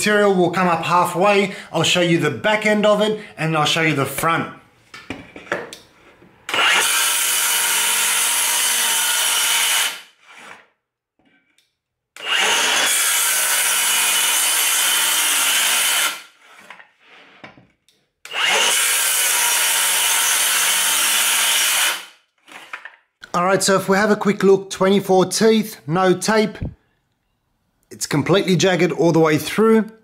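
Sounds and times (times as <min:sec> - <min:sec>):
circular saw cutting board: 0:06.5 - 0:10.7, 0:12.2 - 0:17.6.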